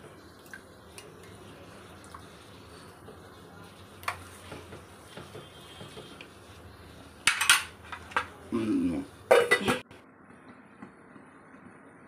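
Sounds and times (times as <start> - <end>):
steel lid clattering on pot: 9.3 - 9.8.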